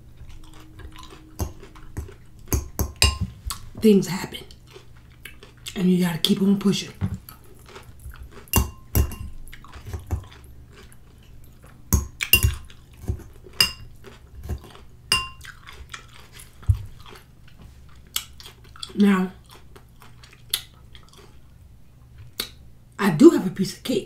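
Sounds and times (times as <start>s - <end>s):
soft chewing: 0.0s - 22.7s
metal spoon clinking on glass bowl: 0.9s - 3.3s, 8.5s - 9.4s, 11.9s - 12.7s, 13.6s - 13.9s, 15.1s - 15.4s.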